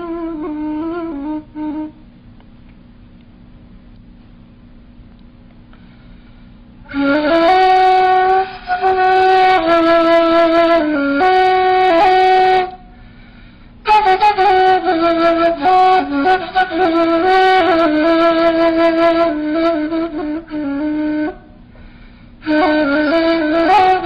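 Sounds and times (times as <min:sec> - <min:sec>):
reed flute melody: 0:00.0 - 0:02.1, 0:06.8 - 0:12.9, 0:13.8 - 0:21.6, 0:22.4 - 0:24.0.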